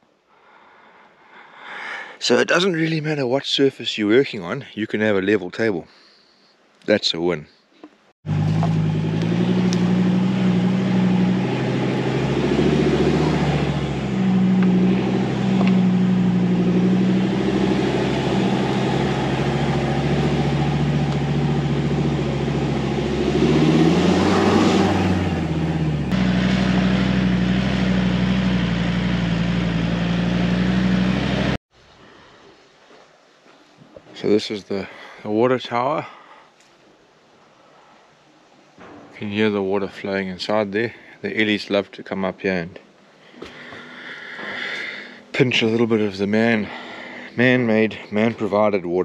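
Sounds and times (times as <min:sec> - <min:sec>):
vehicle engine droning and revving: 0:08.3 - 0:31.6.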